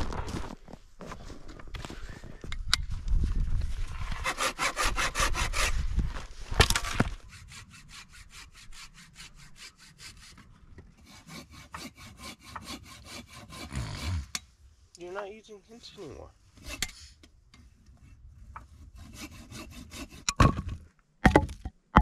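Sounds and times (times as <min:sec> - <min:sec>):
hand saw sawing: 0:04.1 - 0:05.8, 0:07.2 - 0:14.3, 0:16.6 - 0:17.1, 0:18.7 - 0:20.3.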